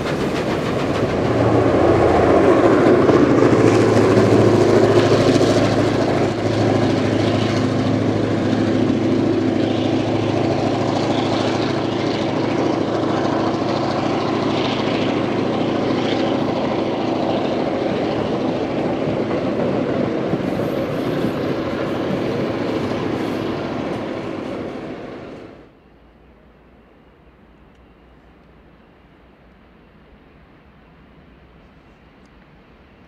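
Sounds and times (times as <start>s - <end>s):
train carriages rumbling on rails: 0.0s - 25.7s
diesel locomotive engine drone: 0.0s - 33.0s.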